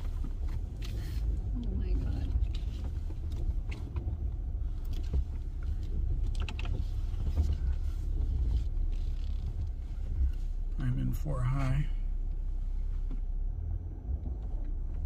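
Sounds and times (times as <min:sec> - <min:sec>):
engine and tyre rumble: 0:00.0 - 0:15.0
light clicks and knocks: 0:02.1 - 0:10.4.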